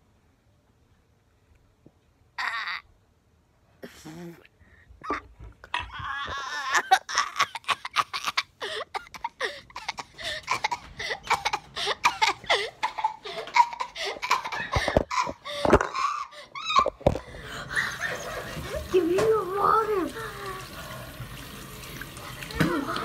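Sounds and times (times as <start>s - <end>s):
boys laughing hard: 5.0s - 18.9s
boys coughing: 6.6s - 16.2s.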